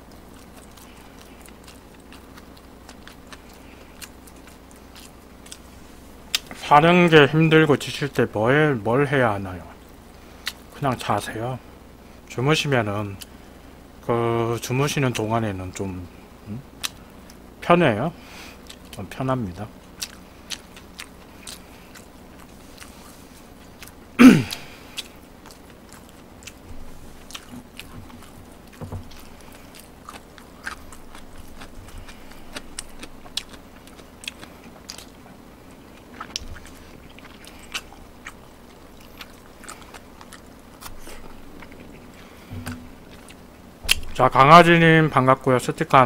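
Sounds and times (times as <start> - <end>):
person chewing food: 0.0 - 6.6, 9.8 - 10.8, 18.4 - 19.0, 19.8 - 44.5.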